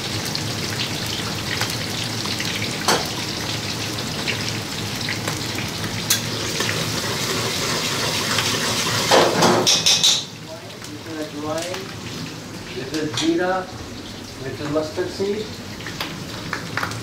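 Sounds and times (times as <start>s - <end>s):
lentils sizzling in hot oil: 0.0s - 13.5s
spatula clattering in wok: 9.6s - 10.3s.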